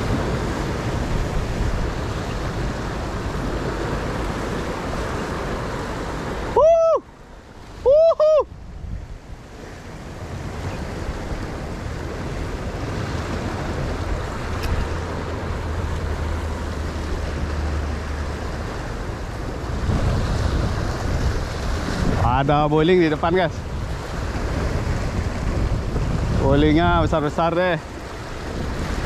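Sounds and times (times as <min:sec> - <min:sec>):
surf on rocky shore: 0:00.0 - 0:29.0
wind on microphone: 0:00.0 - 0:29.0.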